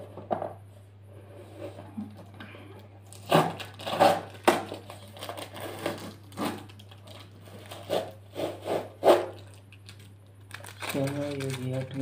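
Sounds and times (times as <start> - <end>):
packing tape ripping off cardboard: 3.1 - 9.4.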